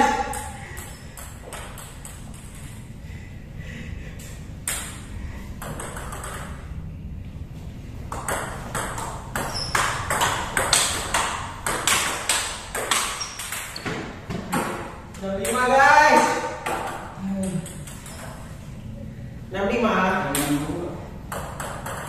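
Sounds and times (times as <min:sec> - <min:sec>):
ball bouncing on table: 0:00.1 - 0:02.6, 0:04.6 - 0:05.0, 0:05.6 - 0:06.6, 0:08.1 - 0:18.4, 0:21.3 - 0:22.0
ball clicking off paddles: 0:04.6 - 0:06.6, 0:08.1 - 0:18.5, 0:21.3 - 0:22.0.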